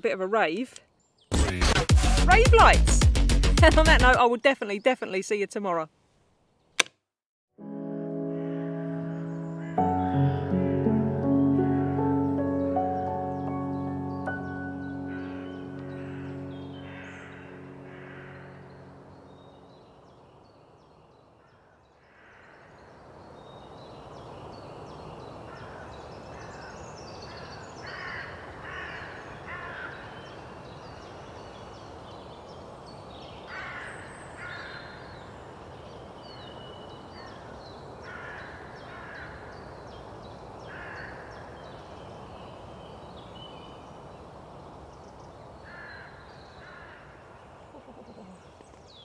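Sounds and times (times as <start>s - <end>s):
crows cawing: 8.4s - 10.9s, 14.9s - 19.1s, 21.4s - 22.9s, 25.5s - 30.5s, 33.5s - 35.2s, 37.2s - 39.6s, 40.6s - 41.8s, 45.6s - 47.5s
small birds chirping: 11.8s - 49.0s
woodland background hiss: 22.2s - 49.0s.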